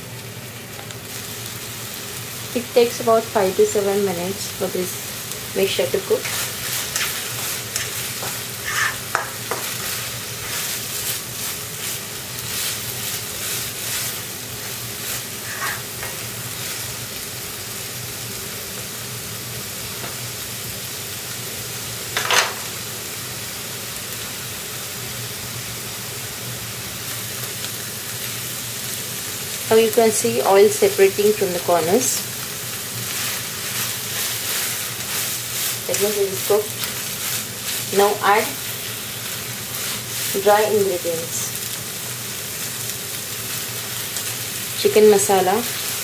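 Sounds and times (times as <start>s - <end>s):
paste sizzling in oil: 0.7s - 19.4s, 26.8s - 46.0s
spoon stirring and scraping pan: 5.7s - 16.9s, 32.8s - 40.8s.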